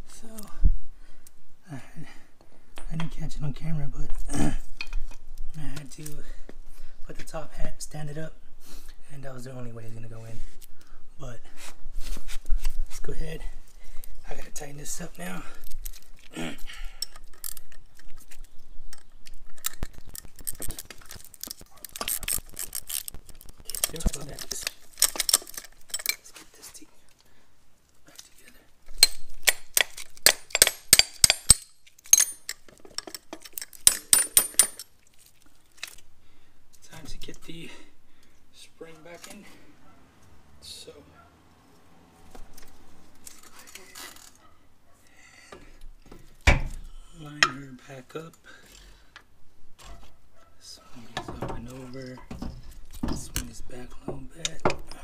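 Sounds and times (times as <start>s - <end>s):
metal tools clinking: 18.9s - 26.5s, 28.9s - 35.4s
metal tool clinks: 30.5s - 34.9s.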